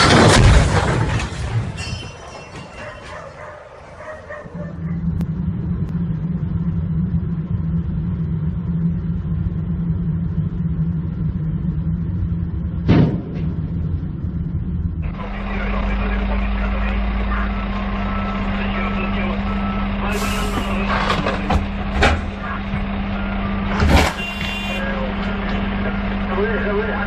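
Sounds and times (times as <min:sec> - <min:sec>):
truck striking overpass bang: 0:00.0 - 0:03.2, 0:12.8 - 0:14.3, 0:20.4 - 0:25.9
car engine and tyres drone: 0:03.4 - 0:27.0.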